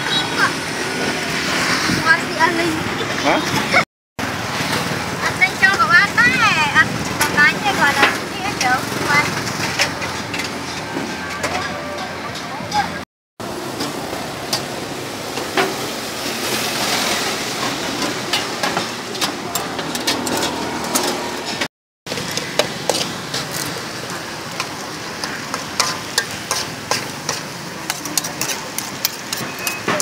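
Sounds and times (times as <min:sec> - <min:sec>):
street stall noise: 0:00.0 - 0:30.0
metal spoon scraping a wok: 0:18.3 - 0:30.0.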